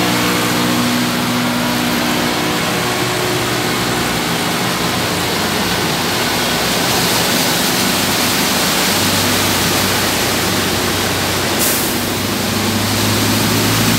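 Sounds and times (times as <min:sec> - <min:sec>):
floodwater churning and splashing: 0:00.0 - 0:13.9
low hum of bus engines: 0:00.0 - 0:13.9.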